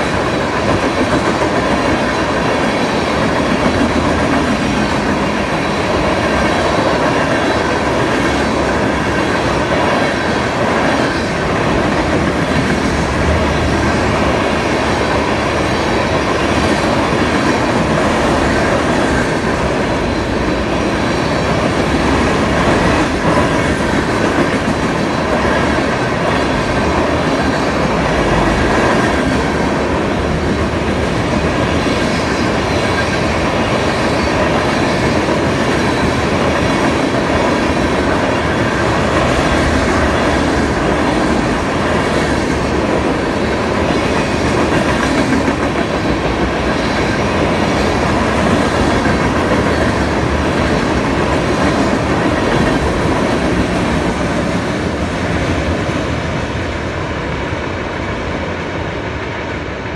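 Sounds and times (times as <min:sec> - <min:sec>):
freight train wheels rolling: 0:00.0 - 0:59.9.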